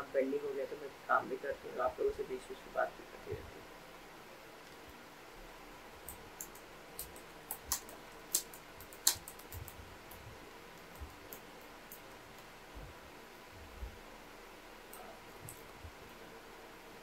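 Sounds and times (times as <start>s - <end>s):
typing on computer keyboard: 6.1s - 10.2s.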